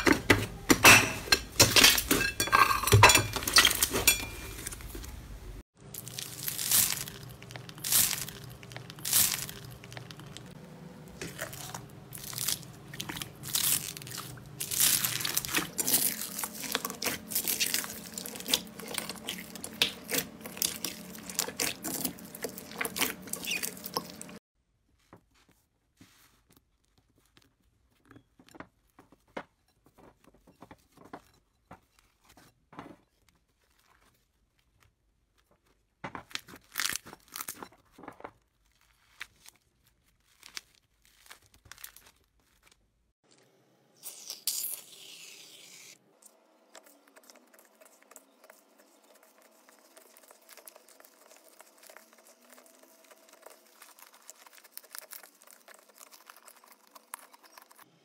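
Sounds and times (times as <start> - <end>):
slime crackling as kneaded: 5.9 - 10.6, 11.2 - 23.9, 33.4 - 43.1, 46.6 - 57.9.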